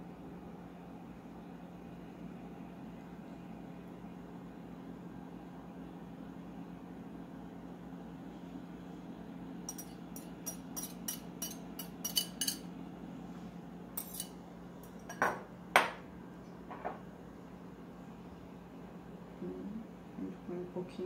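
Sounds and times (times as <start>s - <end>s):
steady low hum: 0.0s - 21.0s
utensil tapping glass bowl: 9.7s - 12.6s.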